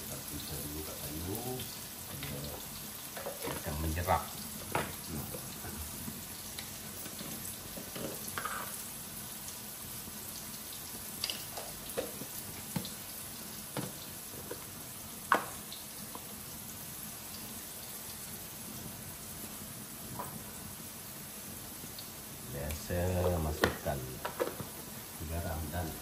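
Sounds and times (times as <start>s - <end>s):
rice sizzling in a pan: 0.0s - 26.0s
spatula knocking and scraping pan: 4.6s - 5.7s, 7.0s - 8.8s.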